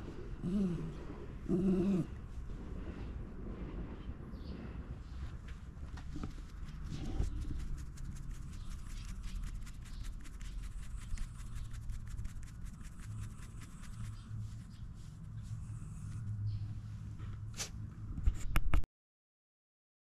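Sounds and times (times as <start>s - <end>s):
fingers scratching dog fur: 6.0s - 16.4s.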